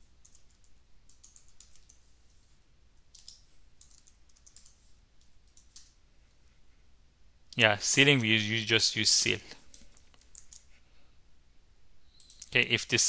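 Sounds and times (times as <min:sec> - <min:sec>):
faint keyboard typing: 0:00.0 - 0:06.6, 0:09.5 - 0:10.8, 0:12.1 - 0:13.0.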